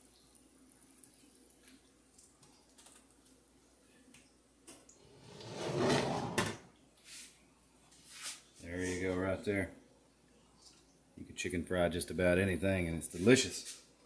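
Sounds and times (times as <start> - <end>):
rustling scrape: 5.2 - 7.4.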